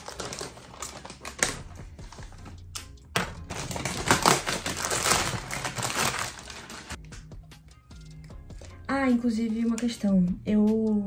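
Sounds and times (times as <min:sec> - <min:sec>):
plastic bag tearing: 0:00.0 - 0:01.6, 0:03.5 - 0:07.0
plastic bag crinkling: 0:00.0 - 0:01.7, 0:03.5 - 0:07.0.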